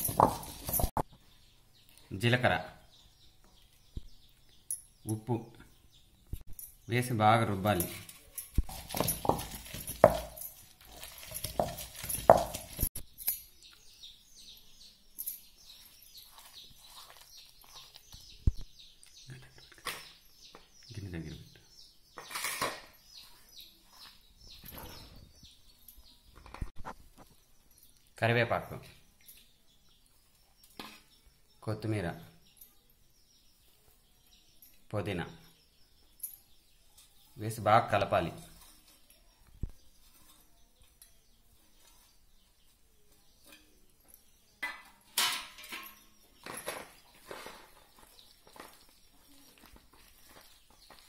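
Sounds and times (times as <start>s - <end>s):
birds chirping: 0.0s - 51.0s
batter mixed by hand in bowl: 16.2s - 18.0s
scraping or rustling noise: 46.4s - 51.0s.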